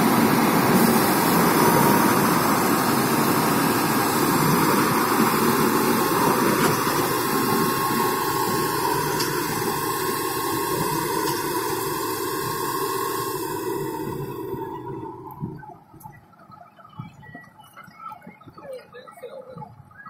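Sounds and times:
straw unloading: 0.0 - 15.2
combine harvester running: 0.0 - 19.2.

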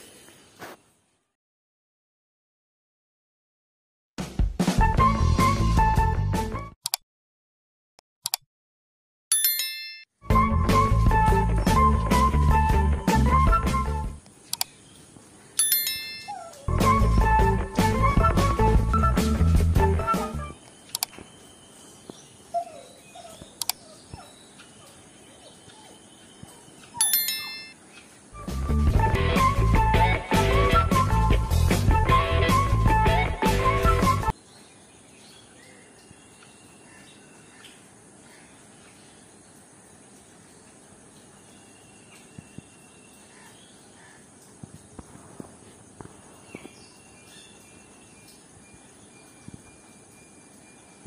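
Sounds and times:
sharp clicks: 6.8 - 7.0, 8.2 - 8.4, 14.2 - 14.8, 20.6 - 21.3, 23.6 - 23.8
bright bell chime: 9.3 - 10.1, 15.6 - 16.5, 27.0 - 27.8
faint chirps: 20.6 - 28.3
high insect chirp: 20.6 - 28.4, 34.4 - 51.0.

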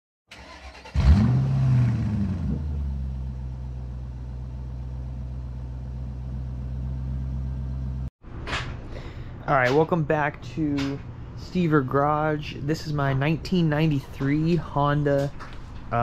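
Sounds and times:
engine starting and idling: 0.3 - 2.8.

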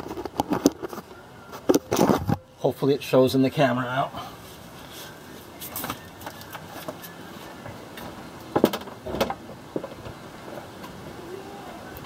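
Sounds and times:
knocks and clunks: 8.0 - 10.2.

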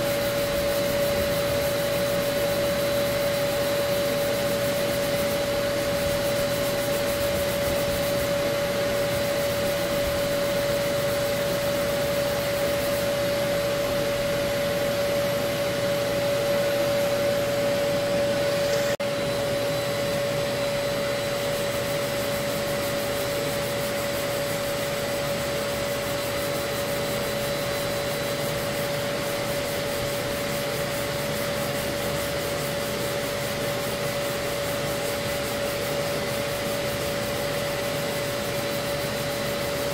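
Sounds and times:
vacuum humming: 0.0 - 39.9
sanding block rubbing: 3.1 - 13.1.

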